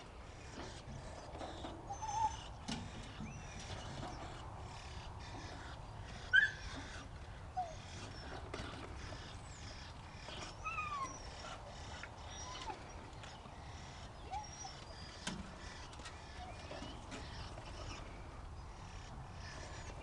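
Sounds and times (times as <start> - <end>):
dogs whining: 0.8 - 4.4, 6.2 - 8.8, 9.6 - 13.4, 14.2 - 15.2.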